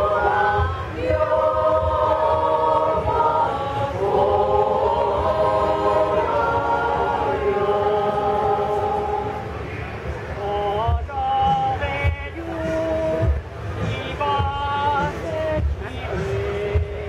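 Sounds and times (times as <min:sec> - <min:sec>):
women's choir singing: 0:00.0 - 0:09.5.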